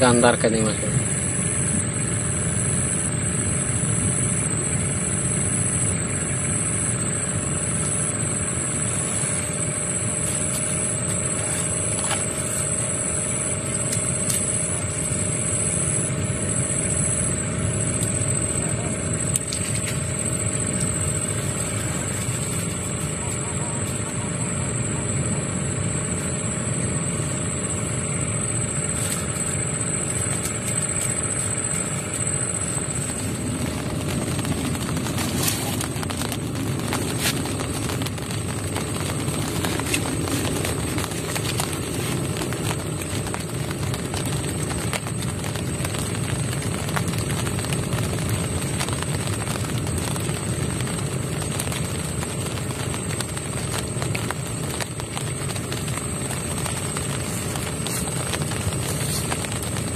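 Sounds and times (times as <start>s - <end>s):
thin high whine: 0.0s - 59.9s
wind rumbling on microphone: 1.0s - 59.9s.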